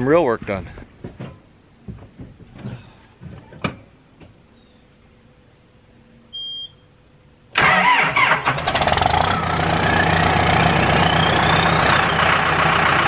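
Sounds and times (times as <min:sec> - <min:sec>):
short beep: 0:06.3 - 0:06.9
engine whine: 0:07.5 - 0:13.0
diesel engine cranking and idling: 0:07.6 - 0:13.0.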